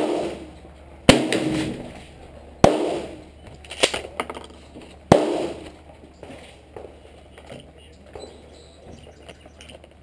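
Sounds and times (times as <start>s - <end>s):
gunshots with ringing tail: 0.0s - 2.0s, 2.6s - 3.3s, 5.1s - 5.8s.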